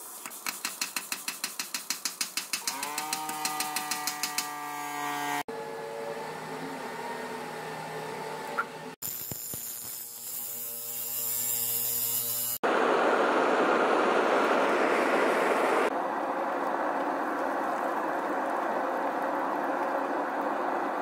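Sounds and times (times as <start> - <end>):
power grinder on steel: 9.1 - 12.6
loud rushing noise: 12.6 - 15.9.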